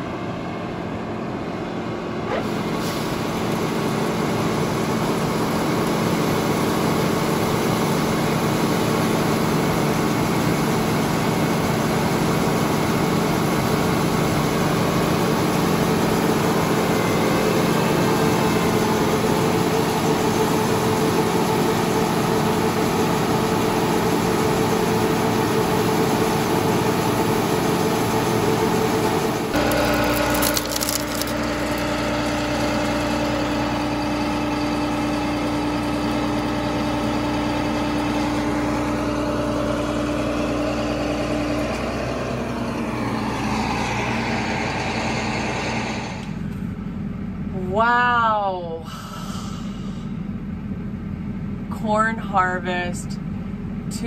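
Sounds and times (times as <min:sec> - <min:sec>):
engine and auger drone: 0:00.0 - 0:54.0
grain rattling: 0:29.6 - 0:31.9.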